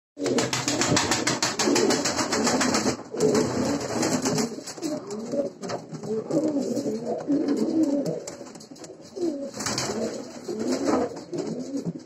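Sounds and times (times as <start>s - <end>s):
fast patter of clicks: 0.2s - 7.0s, 7.6s - 12.0s
pigeons cooing: 0.2s - 12.0s.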